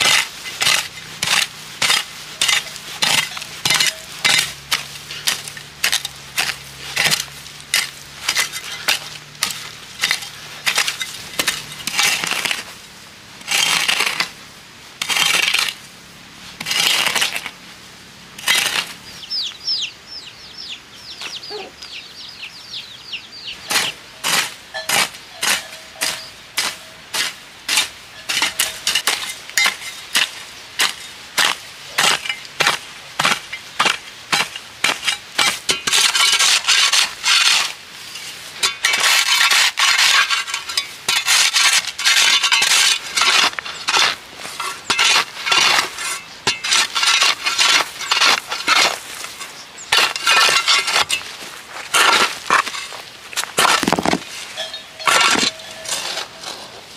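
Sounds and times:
hoe chopping and scraping soil: 0:00.0 - 0:19.3, 0:23.5 - 0:56.9
chick peeping: 0:19.2 - 0:23.8.

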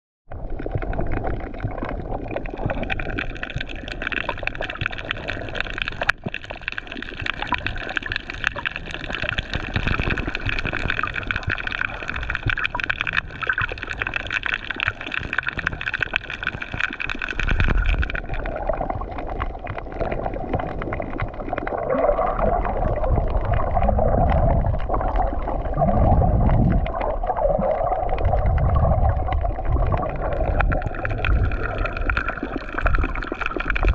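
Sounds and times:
muffled underwater rush: 0:00.3 - 0:33.9
water surging swells: 0:20.1 - 0:33.9.

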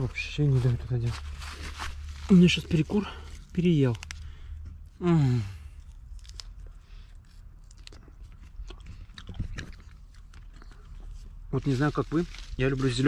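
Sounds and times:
person chewing crunchy fruit: 0:05.4 - 0:11.5.

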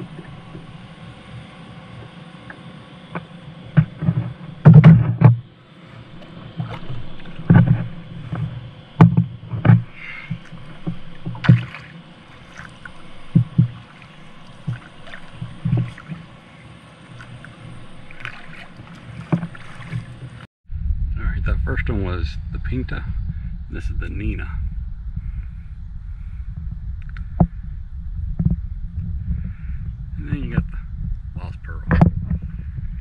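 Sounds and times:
kayak paddle splashing: 0:00.0 - 0:20.5.

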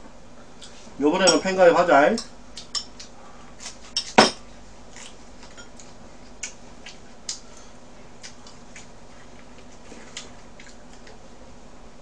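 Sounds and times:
tableware clicks and taps: 0:04.0 - 0:04.4.

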